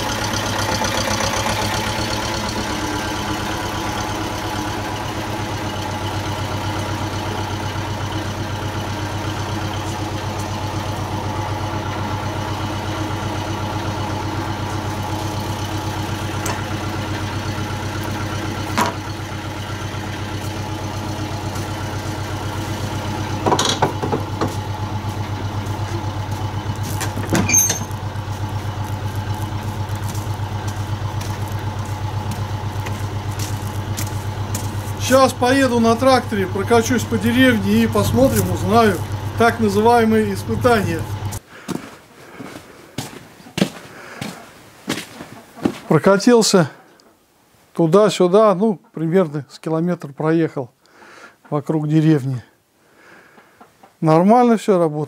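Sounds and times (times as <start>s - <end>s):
tractor diesel engine idling: 0.0s - 41.5s.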